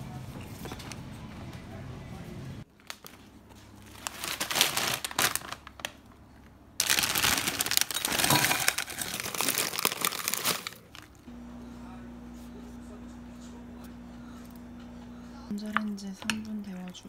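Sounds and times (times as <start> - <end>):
plastic bag crinkling: 2.7 - 6.0, 6.8 - 11.3.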